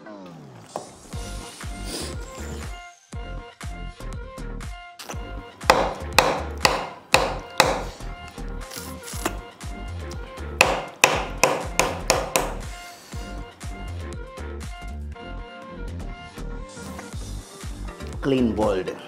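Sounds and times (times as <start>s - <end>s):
background music with a beat: 1.1s - 18.3s
bone knocking on a table: 5.7s - 8.0s, 10.6s - 12.6s.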